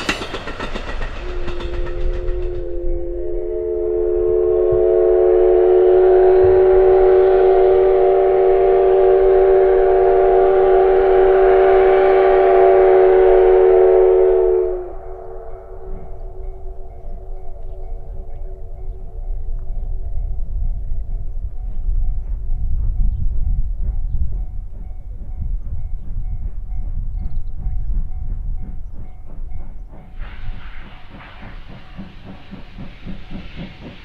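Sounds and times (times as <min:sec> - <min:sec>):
steam hissing: 0:00.0 - 0:16.0, 0:27.9 - 0:34.0
steam locomotive whistle: 0:00.0 - 0:20.0, 0:30.0 - 0:34.0.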